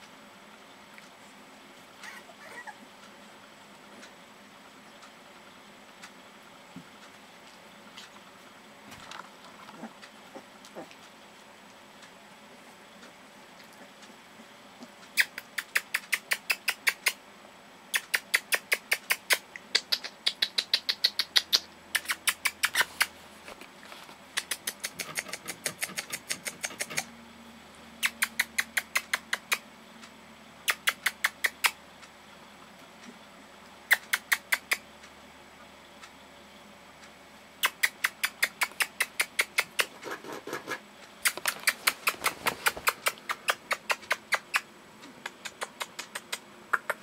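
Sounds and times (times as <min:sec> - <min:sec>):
rapid mouth clicks: 0:14.8 - 0:17.2, 0:17.9 - 0:23.2, 0:24.3 - 0:27.1, 0:28.0 - 0:29.7, 0:30.6 - 0:31.8, 0:33.9 - 0:34.9, 0:37.6 - 0:47.0.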